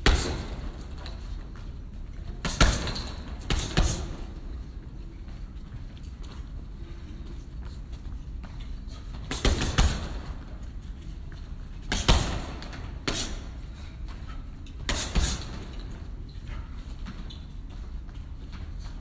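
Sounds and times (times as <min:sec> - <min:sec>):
punches thudding into heavy bag: 0:00.0 - 0:00.6, 0:02.4 - 0:04.2, 0:09.3 - 0:10.2, 0:11.9 - 0:13.3.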